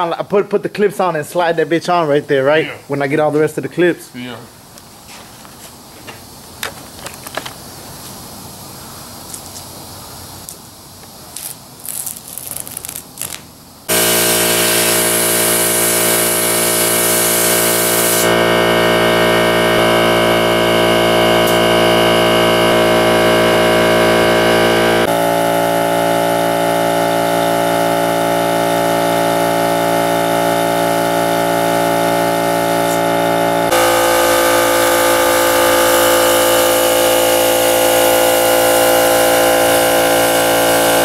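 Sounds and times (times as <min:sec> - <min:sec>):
spray gun hissing: 0:13.9 - 0:19.6, 0:21.3 - 0:23.6, 0:24.6 - 0:41.0
air compressor running: 0:13.9 - 0:41.0.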